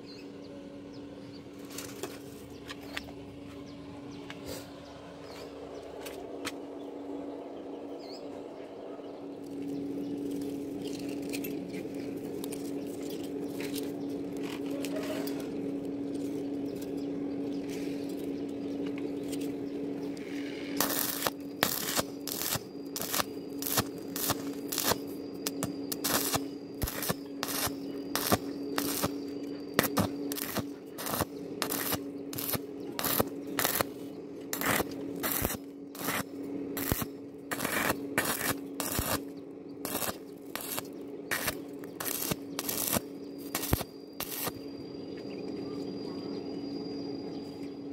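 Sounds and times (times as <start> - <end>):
steady low hum: 0.0 - 47.9
welding arc bursts: 20.2 - 44.6.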